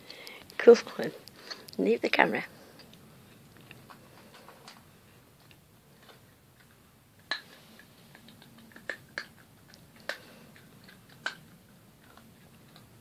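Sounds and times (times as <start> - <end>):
pet eating from metal bowl: 3.6 - 13.0.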